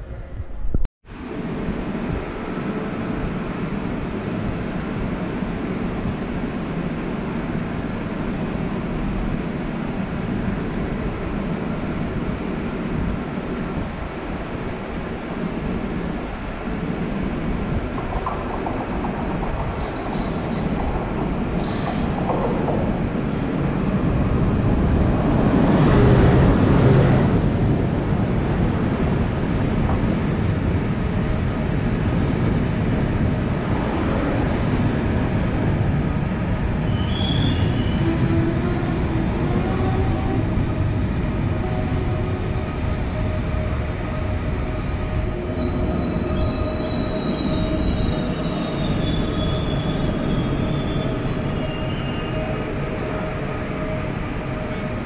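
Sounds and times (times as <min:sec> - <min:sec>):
train wheels rumbling: 0:15.8 - 0:55.0
brake squeals: 0:36.6 - 0:53.3.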